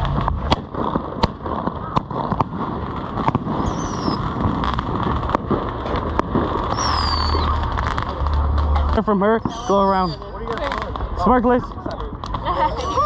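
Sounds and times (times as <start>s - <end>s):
firework pops and bangs: 0.0s - 13.0s
firework whistles falling: 3.4s - 4.4s, 6.6s - 7.7s, 9.4s - 10.4s.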